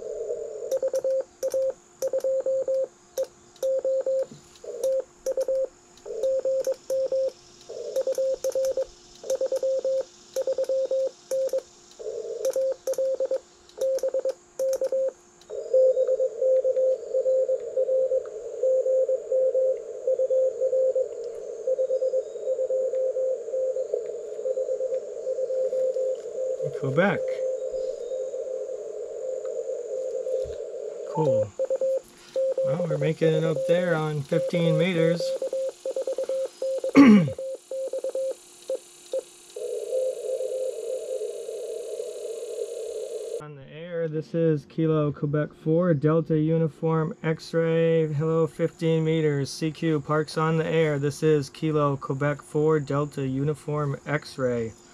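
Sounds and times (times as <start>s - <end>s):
morse code tone: 12.5s - 23.8s, 31.1s - 38.4s
radio receiver hiss: 29.4s - 39.7s.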